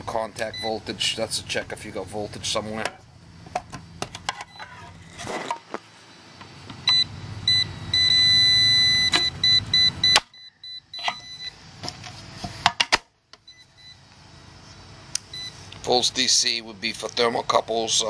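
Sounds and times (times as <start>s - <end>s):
voltage tester beeping: 0.4s - 0.8s, 6.8s - 11.6s, 13.4s - 14.0s, 15.2s - 15.6s.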